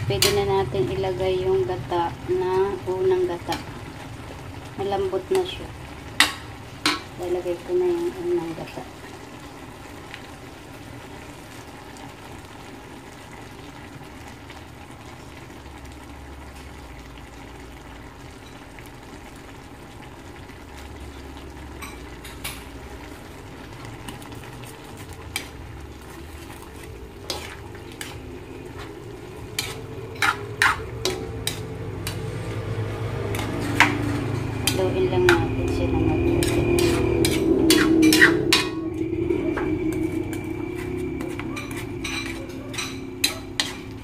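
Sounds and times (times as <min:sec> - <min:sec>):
food sizzling in a wok: 0:00.0 - 0:44.0
metal ladle scraping and clinking: 0:25.3 - 0:32.7, 0:33.3 - 0:44.0.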